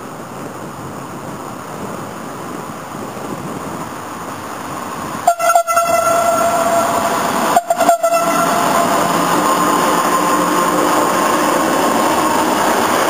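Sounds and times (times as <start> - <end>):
electric train running: 3.3 - 13.0
train horn: 5.2 - 13.0.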